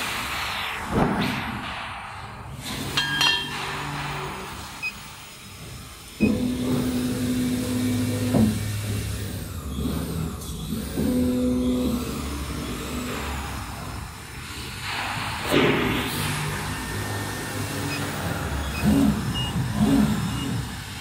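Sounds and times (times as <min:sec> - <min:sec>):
stepper motors whining: 0:03.5 - 0:14.7, 0:16.0 - 0:21.0.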